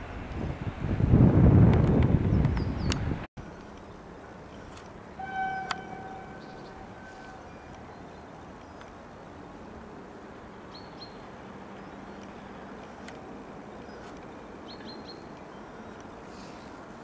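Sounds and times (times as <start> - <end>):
distant train rumble: 3.4 - 17.0.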